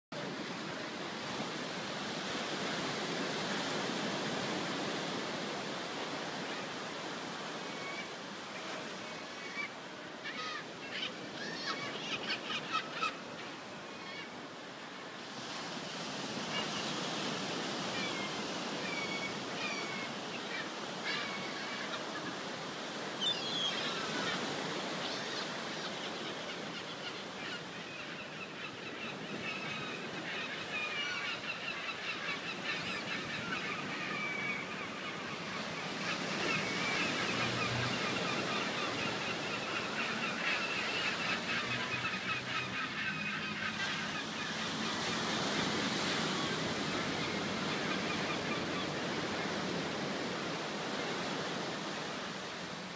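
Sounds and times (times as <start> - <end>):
gulls calling: 6.3 - 14.4, 16.4 - 52.7.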